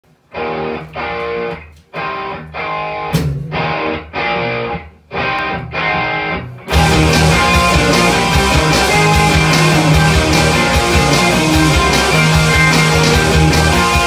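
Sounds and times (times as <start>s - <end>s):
distorted electric bass riff: 5.3s - 14.0s.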